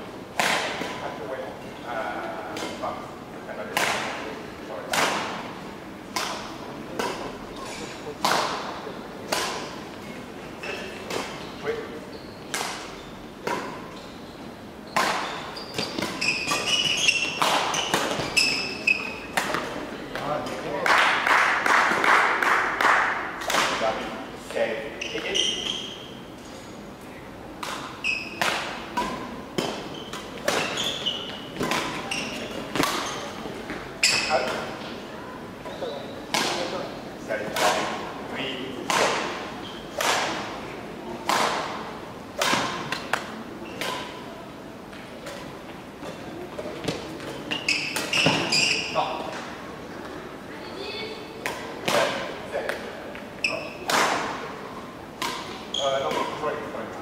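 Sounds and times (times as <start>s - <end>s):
racket hitting shuttlecock: 0.4s - 1.0s, 3.7s - 4.1s, 4.9s - 5.4s, 6.1s - 8.7s, 9.3s - 9.8s, 12.5s - 13.8s, 14.9s - 18.6s, 21.2s - 23.8s, 27.6s - 34.7s, 36.3s - 36.8s, 37.5s - 38.0s, 38.8s - 40.5s, 41.2s - 44.2s, 53.8s - 54.4s, 55.2s - 56.4s
court shoes squeaking: 0.4s - 20.7s, 23.4s - 26.9s, 27.5s - 56.9s.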